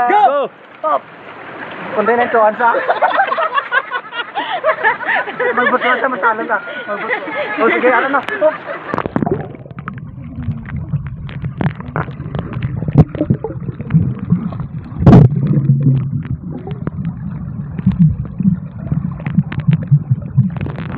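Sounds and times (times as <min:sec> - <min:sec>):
water gurgling: 0:06.6 - 0:20.9
underwater clicks and knocks: 0:08.2 - 0:20.9
muffled underwater rumble: 0:08.9 - 0:20.9.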